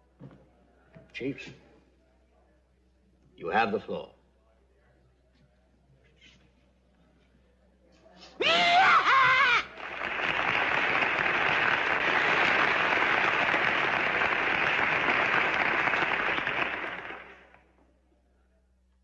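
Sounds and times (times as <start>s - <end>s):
man whooping: 8.4s - 9.8s
crowd applauding: 9.0s - 17.6s.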